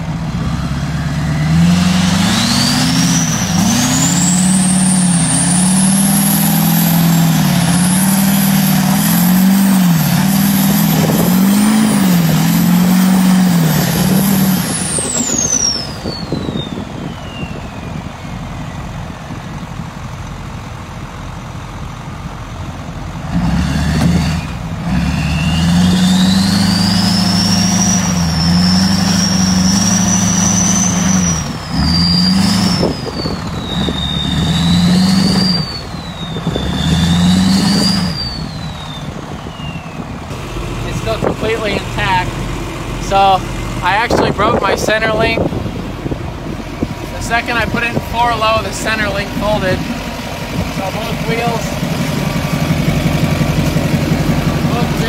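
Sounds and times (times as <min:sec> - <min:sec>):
diesel truck engine revving: 0:00.0 - 0:55.0
turbo whistle: 0:02.2 - 0:18.8, 0:25.2 - 0:40.2.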